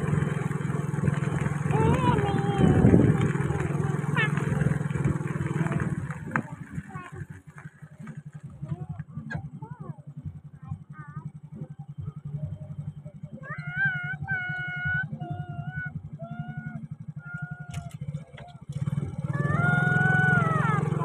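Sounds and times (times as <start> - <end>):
small engine running: 0.0 - 21.0
child singing: 1.7 - 4.5, 13.4 - 18.0.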